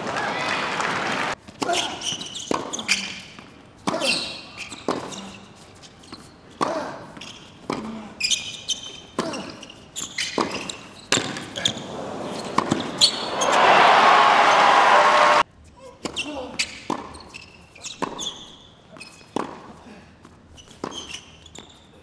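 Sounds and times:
shoe squeaks: 0:01.6 - 0:13.6, 0:16.0 - 0:19.6, 0:20.4 - 0:22.0
tennis ball struck by rackets: 0:12.4 - 0:13.3.

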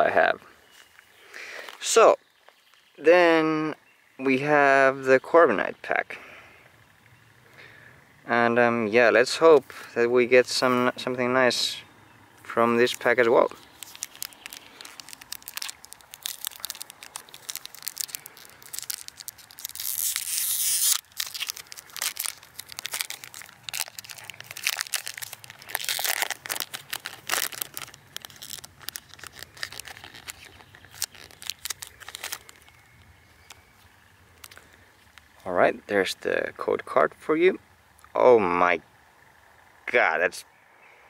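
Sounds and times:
foil pack crinkling: 0:12.7 - 0:35.4
foil pack tearing: 0:12.8 - 0:32.8.

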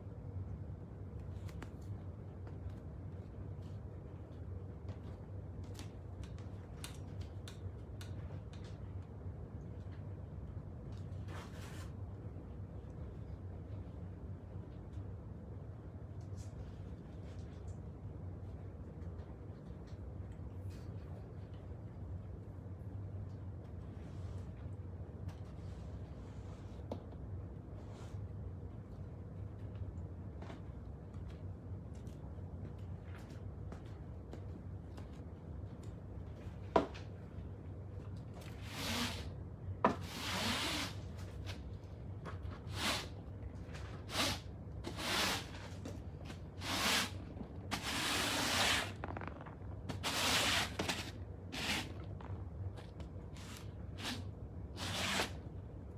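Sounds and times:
low room hum: 0:00.0 - 0:55.9
broom sweeping foam mats: 0:40.0 - 0:41.7, 0:42.5 - 0:52.4, 0:53.3 - 0:55.4.

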